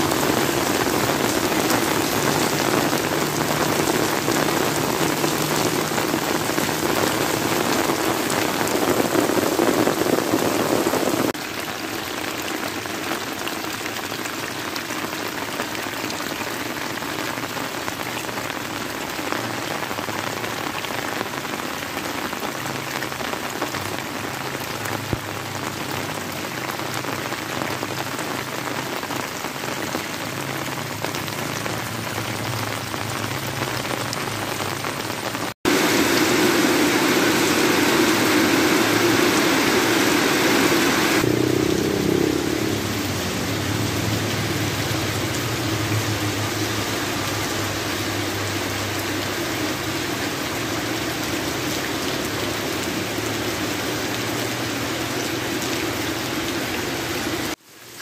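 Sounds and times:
runoff water pouring: 0.0 - 19.2, 35.6 - 57.7
heavy rain falling: 0.0 - 58.0.

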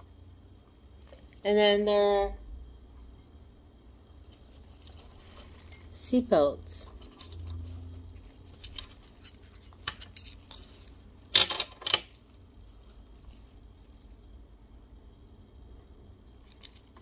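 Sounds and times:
metal hooks and buckles clinking: 3.9 - 6.2, 8.5 - 14.1.

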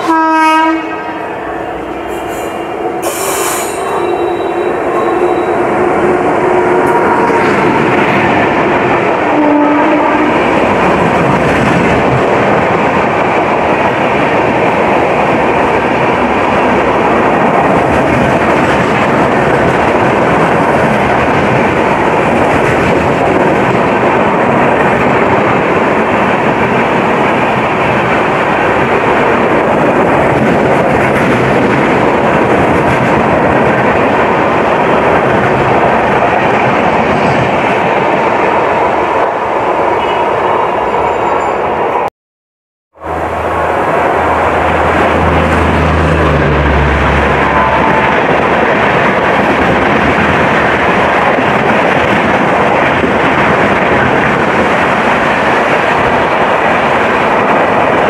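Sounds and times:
train horn: 0.0 - 5.7, 9.3 - 10.5, 45.2 - 48.2
train wheels rushing on rails: 0.0 - 42.1, 43.0 - 58.0.

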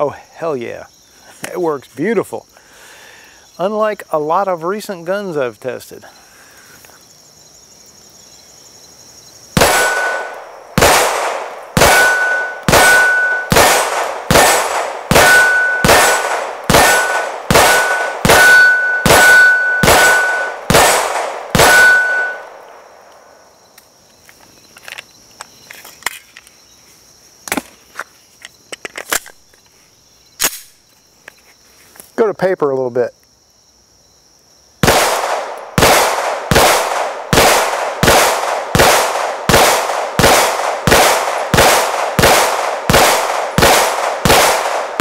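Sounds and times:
pistol shots: 9.6 - 22.8, 34.8 - 45.0
ring of steel target hits: 16.8 - 20.5.

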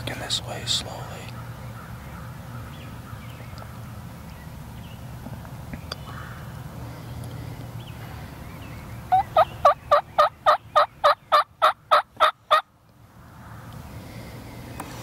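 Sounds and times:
turkey yelping: 9.1 - 12.7.

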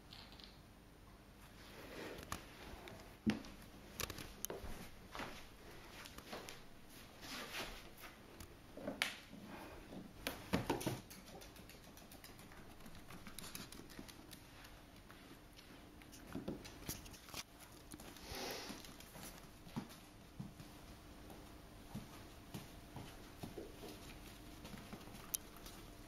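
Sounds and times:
dog footsteps on wooden floor: 18.8 - 26.0.

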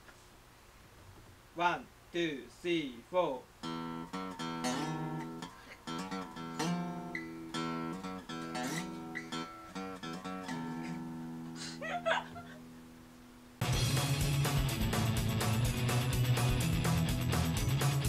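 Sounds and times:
music track: 3.6 - 11.4, 13.6 - 18.0
acoustic guitar strumming: 3.6 - 13.0, 13.6 - 18.0
person laughing: 10.8 - 12.8.

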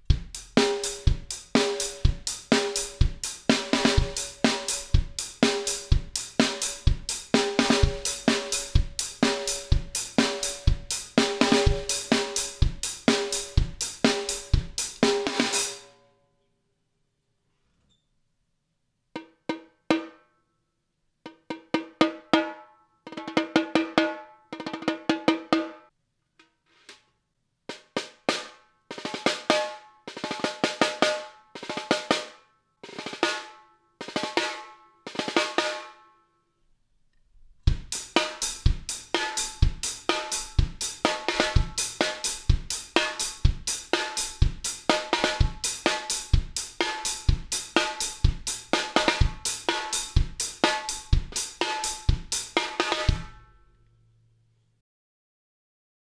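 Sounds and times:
snare drum strokes and rolls: 0.0 - 15.8, 37.7 - 53.3
drum kit groove: 0.0 - 15.9, 27.7 - 32.3, 37.6 - 53.4.

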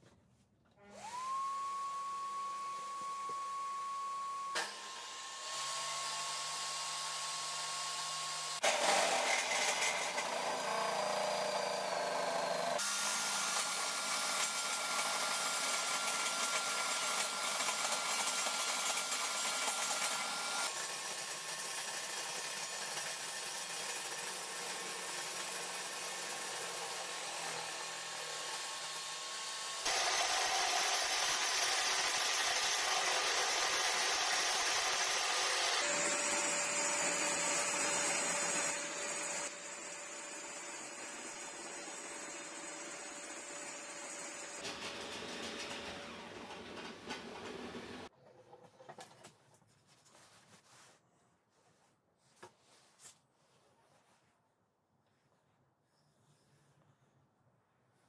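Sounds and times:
shop vacuum running: 0.7 - 48.1
table saw running: 0.8 - 48.1
saw blade cutting wood: 4.5 - 48.1.

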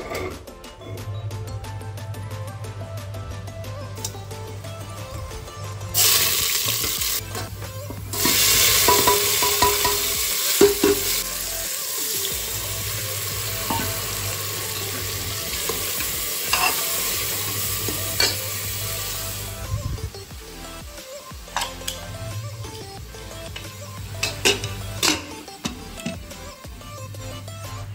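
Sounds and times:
food sizzling in hot oil: 5.9 - 26.5
steel ladle clinking: 8.1 - 11.2, 13.6 - 14.1, 14.7 - 18.5, 23.6 - 26.2.

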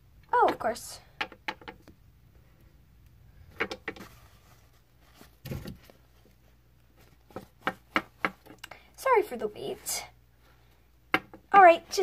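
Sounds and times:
plastic toys clicking and tapping: 0.3 - 2.0.

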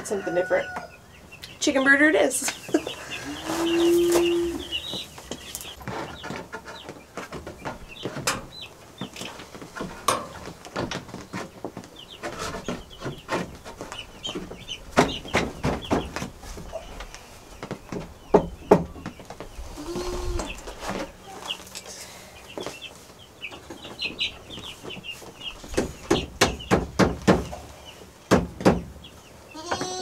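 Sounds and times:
chickens calling: 0.0 - 30.0
wooden boards knocking and clattering: 5.8 - 16.4, 25.6 - 27.6, 28.3 - 29.0.

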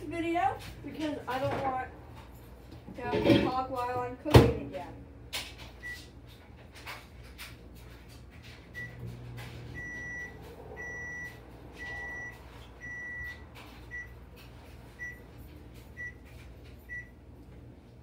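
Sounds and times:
microwave oven beeping: 5.6 - 6.2, 8.5 - 17.5.

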